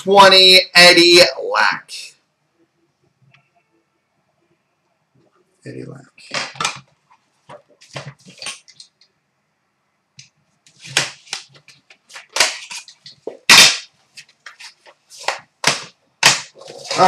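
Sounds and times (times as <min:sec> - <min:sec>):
card packaging crackling and rustling: 0:10.7 - 0:17.0.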